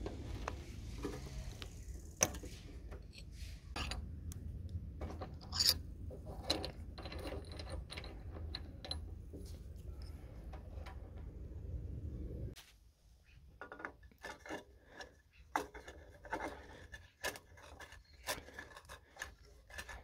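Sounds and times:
metal wrench clicks and scrapes: 0:05.2 - 0:09.1, 0:14.0 - 0:20.0.

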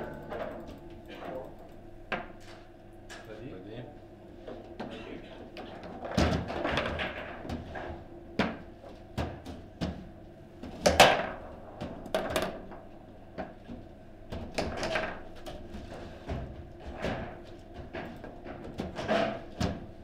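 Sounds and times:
table football clacks and knocks: 0:05.6 - 0:19.9.

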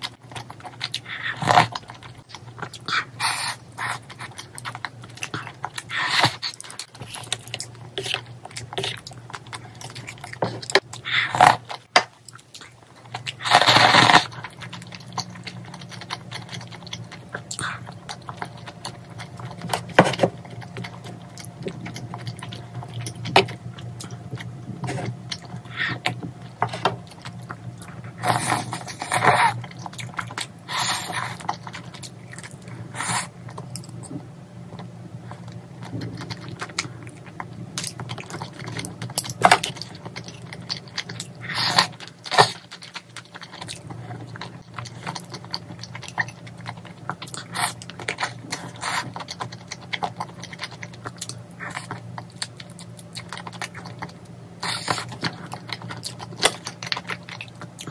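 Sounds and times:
person chewing food: 0:00.0 - 0:57.9.

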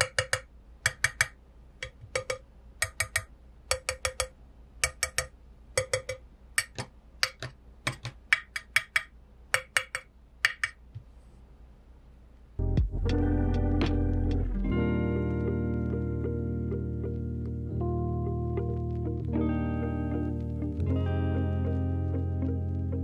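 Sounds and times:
fingertips tapping on metal case: 0:00.0 - 0:10.8.

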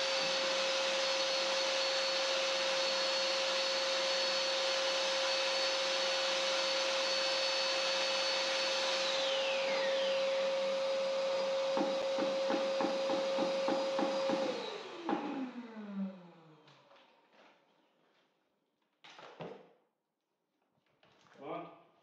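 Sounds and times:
electric paddle mixer whining: 0:00.0 - 0:16.6
regular knocks: 0:11.7 - 0:14.5.

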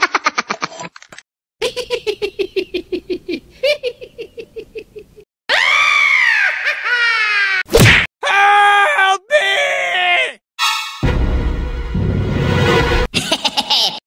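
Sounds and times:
cartoon wailing cries: 0:05.5 - 0:10.4
sharp whack: 0:07.7 - 0:08.1.

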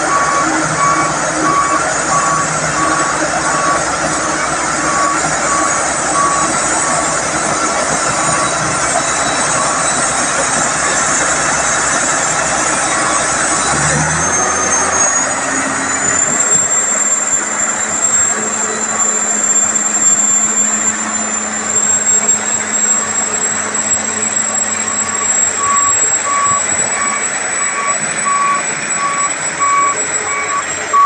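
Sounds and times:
heavy machinery running: 0:00.0 - 0:31.0
high whine: 0:00.0 - 0:31.0
reversing alarm beeping: 0:00.0 - 0:31.0.

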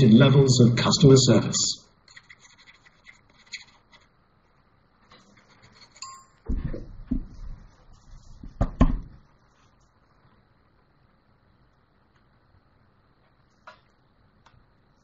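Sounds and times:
chime-like tone: 0:06.0 - 0:06.4
light clinking: 0:06.0 - 0:06.5
heavy thumps: 0:06.4 - 0:07.7, 0:08.3 - 0:09.2.

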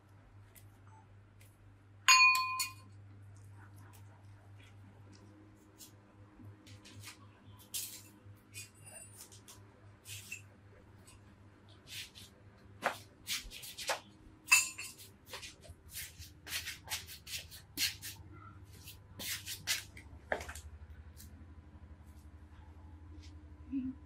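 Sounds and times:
faint low hum: 0:00.0 - 0:12.9, 0:13.9 - 0:19.2, 0:19.8 - 0:24.0
sharp clink: 0:02.1 - 0:02.9
hands rubbing spice into fish: 0:15.0 - 0:18.2, 0:18.8 - 0:19.9.

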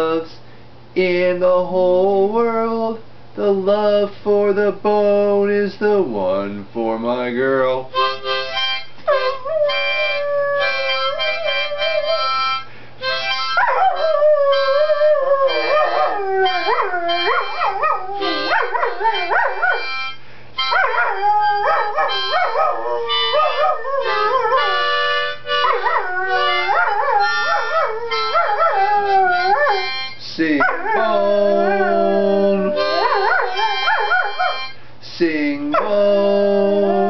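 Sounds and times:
music with held notes: 0:07.9 - 0:30.2, 0:31.0 - 0:34.9
dog howling: 0:09.1 - 0:12.5, 0:13.6 - 0:20.0, 0:20.7 - 0:30.0, 0:30.6 - 0:34.6, 0:35.7 - 0:37.0.

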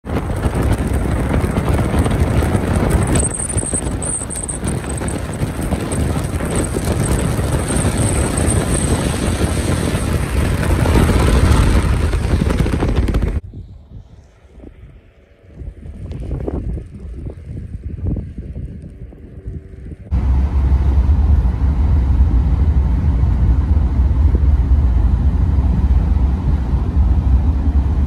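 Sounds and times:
tyre and wind noise: 0:00.0 - 0:20.3
wind buffeting microphone: 0:00.0 - 0:28.0.

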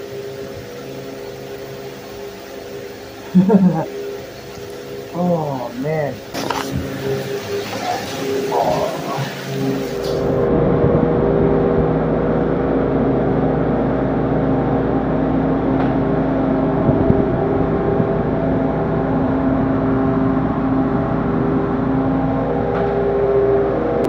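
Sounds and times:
refrigeration fans humming: 0:00.0 - 0:24.0.

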